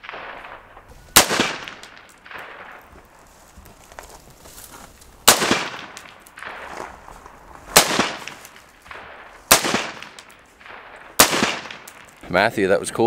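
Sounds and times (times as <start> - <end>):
rifle shots with echo: 0.0 - 3.1, 5.2 - 7.0, 7.6 - 12.2.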